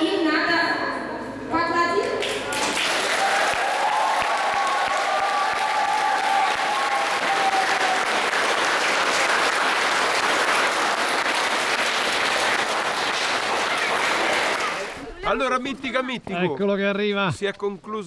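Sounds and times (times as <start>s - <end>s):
audience applauding: 2.2s - 15.0s.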